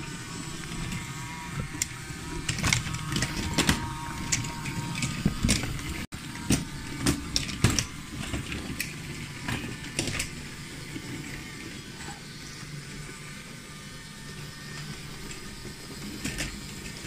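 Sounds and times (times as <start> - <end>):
toy train motors whirring: 0.0 - 17.0.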